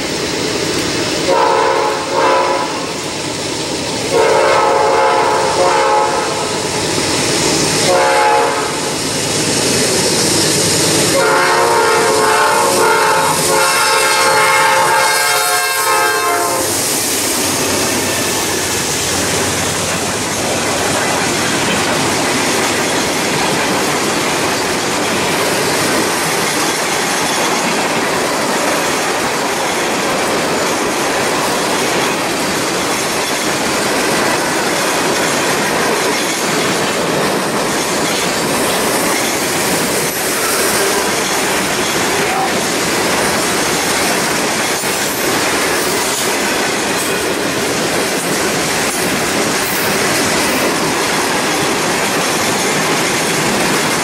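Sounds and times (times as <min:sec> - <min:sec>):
train horn blasts: 0:01.3 - 0:02.9, 0:04.1 - 0:06.6, 0:07.9 - 0:08.9, 0:11.1 - 0:16.8
freight cars clattering on rails: 0:09.0 - 0:54.0.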